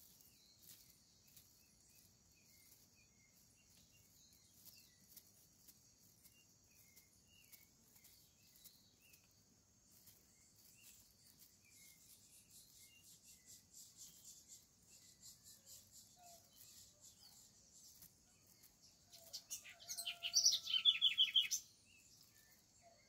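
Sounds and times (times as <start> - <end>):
high insect chorus: 0.0 - 23.0
small bird chirps: 0.0 - 23.0.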